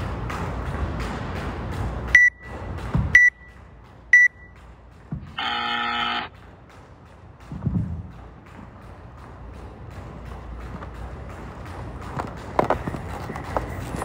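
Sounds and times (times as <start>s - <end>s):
music with steady beat: 0.0s - 14.0s
short high beeps: 3.2s - 3.5s, 4.2s - 4.5s
long timer buzz: 5.3s - 6.3s
thud: 7.5s - 8.2s.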